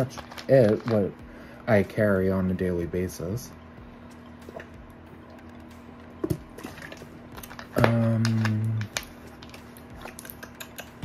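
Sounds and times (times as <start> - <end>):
plastic bottle crackling: 0.0 - 1.1, 6.2 - 10.6.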